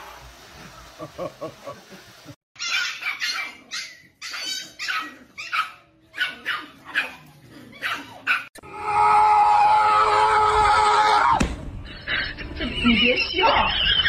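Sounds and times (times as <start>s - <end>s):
dogs yipping: 2.6s - 8.6s.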